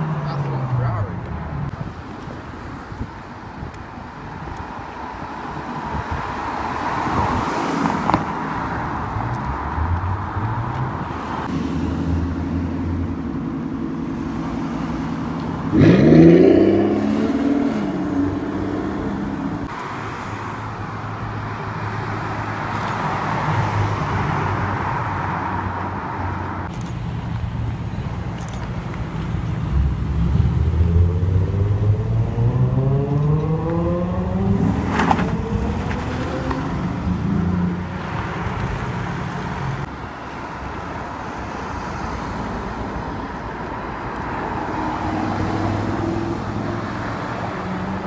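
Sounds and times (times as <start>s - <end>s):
car engine and tyres approaching: 0.0s - 48.0s
street traffic passing: 0.0s - 48.0s
sports car engine revving: 15.6s - 19.7s.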